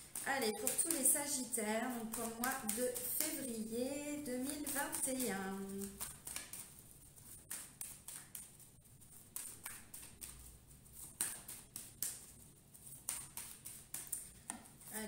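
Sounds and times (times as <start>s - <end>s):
cards being shuffled: 0.0s - 15.0s.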